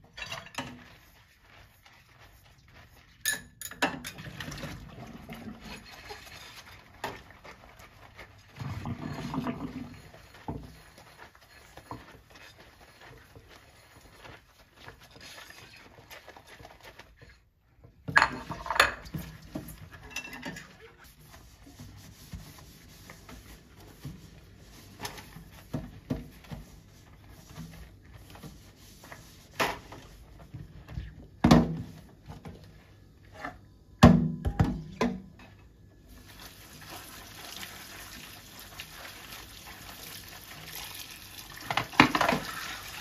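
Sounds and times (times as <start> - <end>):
sponge scrubbing: 0.0 - 33.6, 36.0 - 43.0
dishes clinking and clattering: 3.2 - 4.6, 18.1 - 19.2, 19.9 - 20.9.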